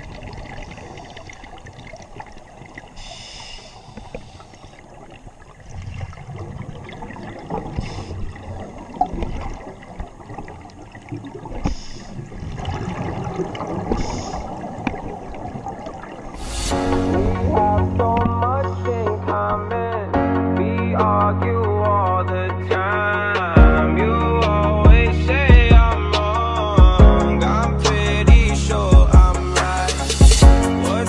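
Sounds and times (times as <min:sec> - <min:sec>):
bubbles gurgling underwater: 0:00.0 - 0:03.0, 0:04.9 - 0:18.8
regulator breathing hiss: 0:03.0 - 0:04.8, 0:07.8 - 0:08.3, 0:11.6 - 0:12.2, 0:16.4 - 0:17.4, 0:29.8 - 0:30.5.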